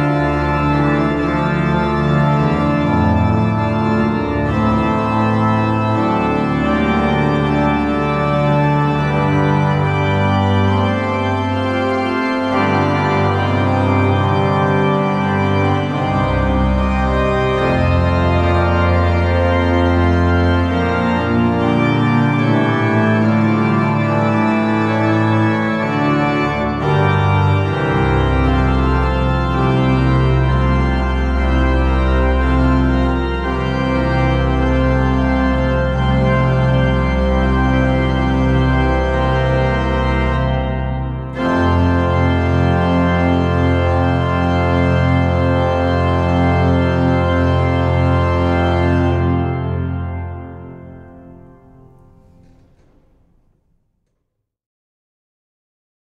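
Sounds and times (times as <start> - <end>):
deep organ pedal bass notes: 0.0 - 53.0
pipe organ chords: 0.0 - 53.5.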